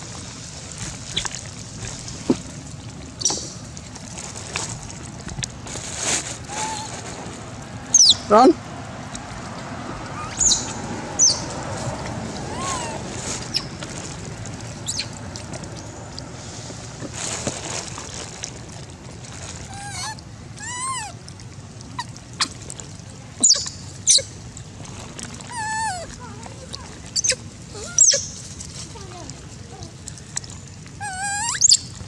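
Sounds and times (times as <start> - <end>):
monkey coos: 6.5 - 7.0, 12.4 - 13.6, 19.7 - 21.2, 25.5 - 26.2, 27.2 - 28.3, 31.0 - 31.8
monkey squeaks and chirps: 7.9 - 8.3, 10.2 - 11.4, 12.5 - 13.8, 14.8 - 15.1, 23.4 - 24.3, 27.2 - 28.4, 31.0 - 31.9
monkey shrill squeal: 10.2 - 11.4, 23.4 - 24.3, 27.2 - 28.3, 31.0 - 31.8.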